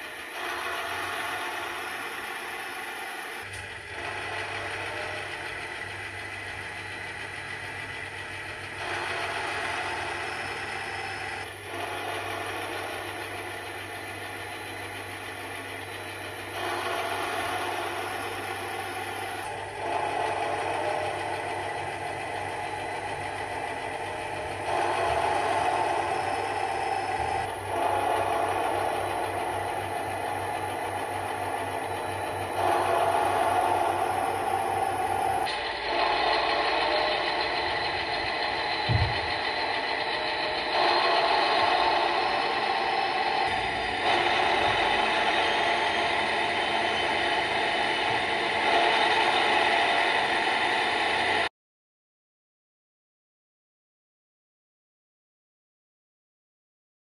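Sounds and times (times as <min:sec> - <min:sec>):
diesel locomotive engine through speaker: 0:00.0 - 0:51.5.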